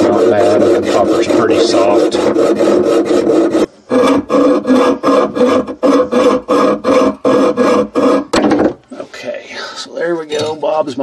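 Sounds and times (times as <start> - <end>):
hacksaw cutting copper pipe: 0.0 - 8.7.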